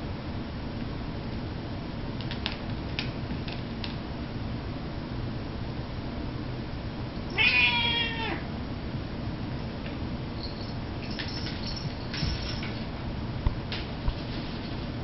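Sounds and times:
cat meowing: 7.3s - 8.5s.

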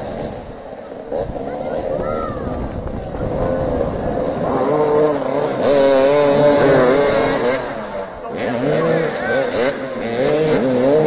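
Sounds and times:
motorcycle engines revving: 0.0s - 11.0s.

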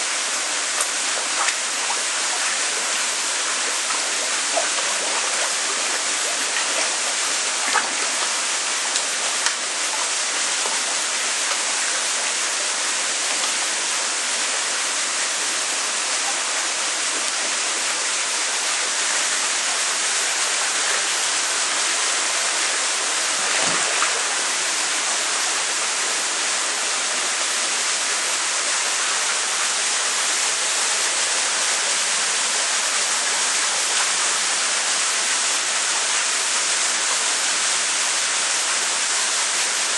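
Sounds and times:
water rushing in tank: 0.0s - 39.9s
fish splashing at surface: 0.8s - 11.7s, 22.4s - 25.2s.

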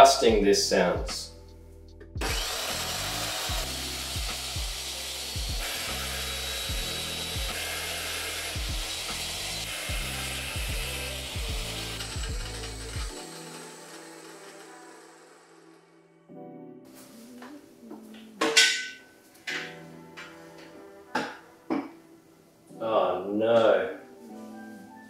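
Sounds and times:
drill press grinding through steel: 2.2s - 15.9s.

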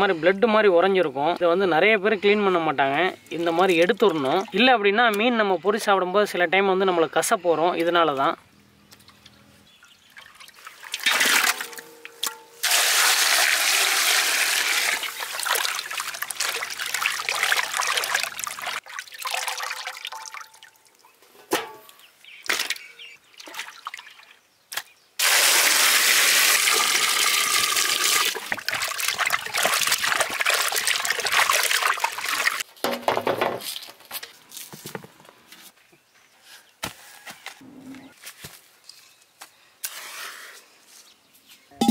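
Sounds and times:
water splashing in a metal basin: 3.3s - 4.6s, 10.1s - 24.4s, 25.2s - 32.7s.

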